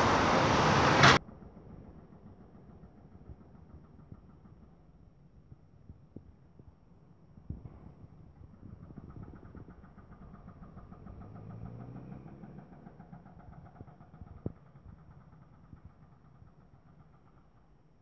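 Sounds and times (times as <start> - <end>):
distant engine humming: 0.0 - 4.7.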